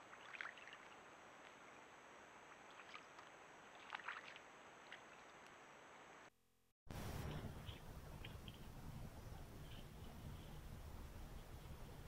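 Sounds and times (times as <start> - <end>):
hooves splashing in shallow water: 0.0 - 5.6
steady low hiss: 0.8 - 3.8, 4.4 - 6.3, 6.9 - 12.0.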